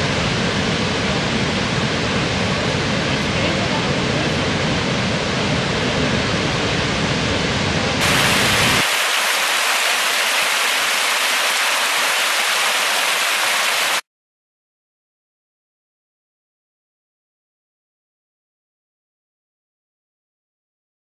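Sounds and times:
waterfall roaring: 0.0s - 14.0s.

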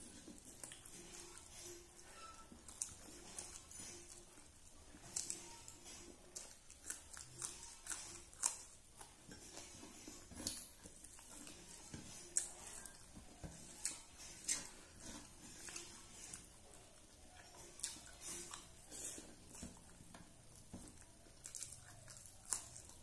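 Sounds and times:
fingers mixing rice on steel plate: 6.3s - 22.8s
wet chewing smacks and clicks: 6.3s - 23.0s.

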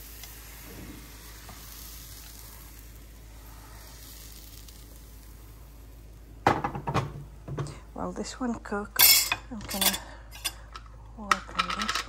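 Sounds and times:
batter sizzling in frying pan: 0.0s - 9.2s.

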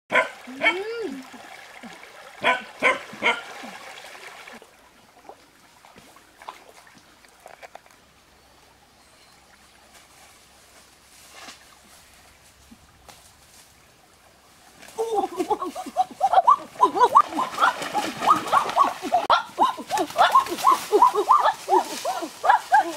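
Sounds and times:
faint trickle of water: 0.1s - 15.3s.

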